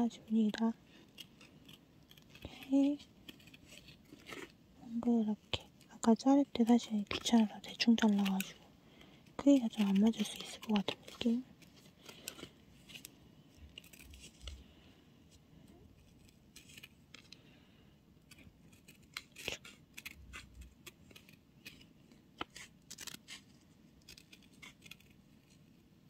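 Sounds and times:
scissors snipping paper: 0:00.3 - 0:04.5, 0:06.4 - 0:08.6, 0:09.4 - 0:13.1, 0:13.7 - 0:14.6, 0:18.2 - 0:25.6.

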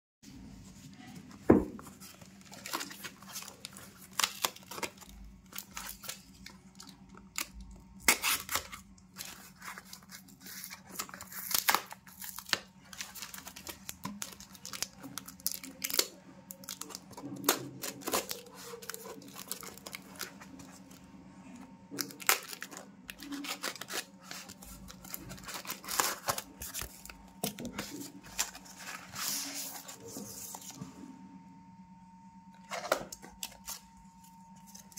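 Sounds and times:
paper and cardboard ripping: 0:02.0 - 0:20.8, 0:22.0 - 0:30.7.

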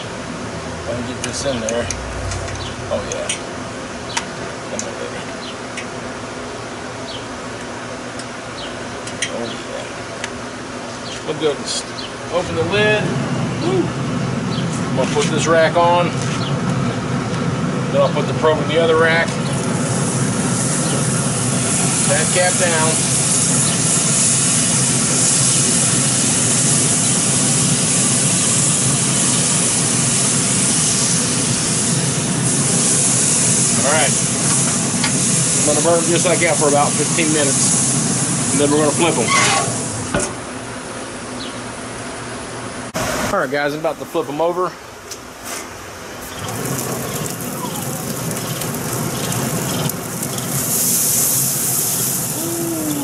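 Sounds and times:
meat sizzling on a grill: 0:17.9 - 0:40.1, 0:46.1 - 0:53.0.

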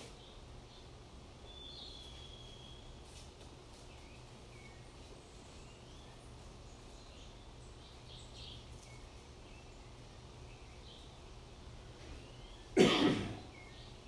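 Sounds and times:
faint bird chirps: 0:00.0 - 0:11.2
low steady hum: 0:00.0 - 0:14.0.

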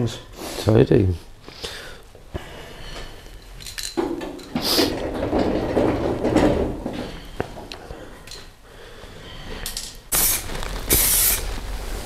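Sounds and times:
aerosol spray can hissing: 0:10.1 - 0:12.0.

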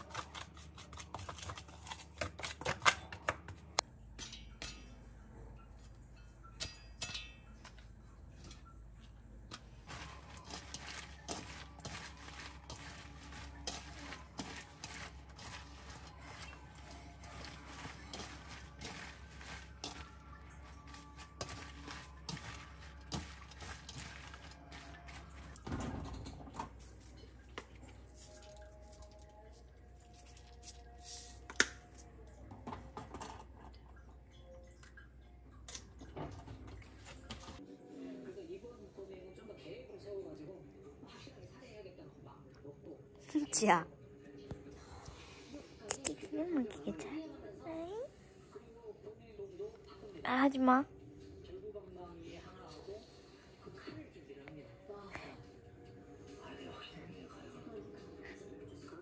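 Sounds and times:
cabbage leaves crinkling and squishing: 0:09.8 - 0:25.7.

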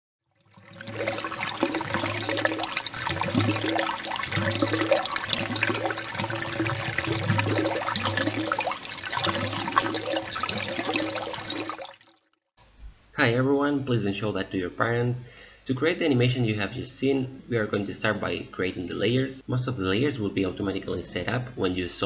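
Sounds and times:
water gushing and gurgling: 0:00.4 - 0:12.3.

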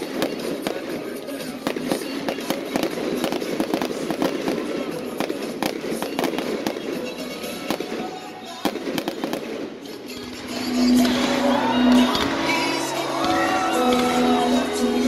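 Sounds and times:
fireworks bangs and crackles: 0:00.0 - 0:15.0
music with long held notes: 0:00.0 - 0:15.0.

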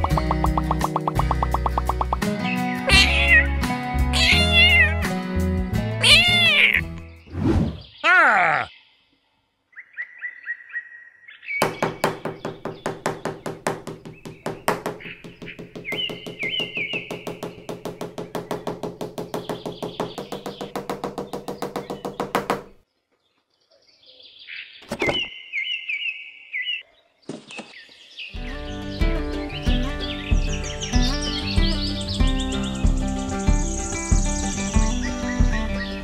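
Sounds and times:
rapid even tapping: 0:00.0 - 0:02.3, 0:11.6 - 0:22.8
high bird chirps: 0:00.0 - 0:03.4, 0:06.0 - 0:09.0, 0:09.7 - 0:22.2.

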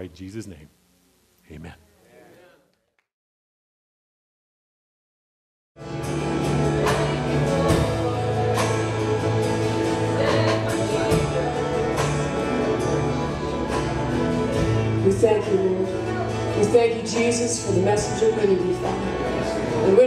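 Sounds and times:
worship band playing: 0:05.8 - 0:20.0.

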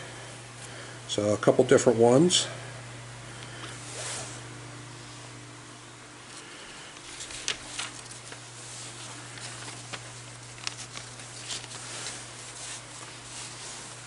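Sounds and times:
steady low hum: 0:00.0 - 0:14.0
paper stickers rustling: 0:07.0 - 0:14.0.

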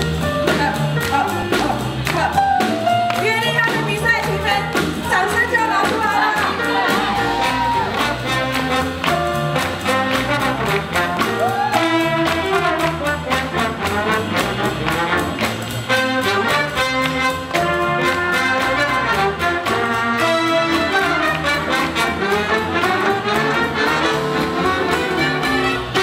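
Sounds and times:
drum beat: 0:00.0 - 0:26.0
swing jazz band playing: 0:00.0 - 0:26.0
upright bass: 0:00.0 - 0:26.0
trumpets and trombones: 0:06.2 - 0:26.0.

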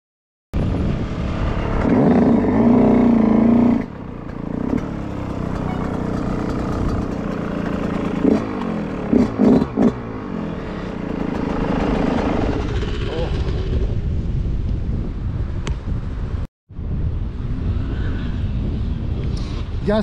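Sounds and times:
two-stroke engine revving: 0:01.1 - 0:14.0.

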